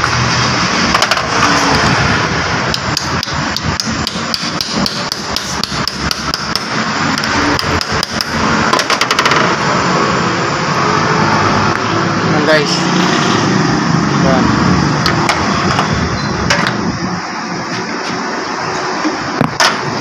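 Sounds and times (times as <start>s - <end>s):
hammer tapping metal: 2.7s - 9.4s.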